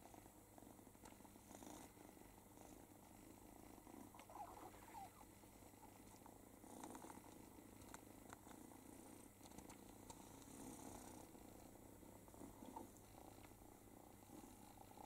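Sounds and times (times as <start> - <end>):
cat purring: 0.0 - 15.0
soft clicks and rustles: 4.0 - 10.6, 12.3 - 15.0.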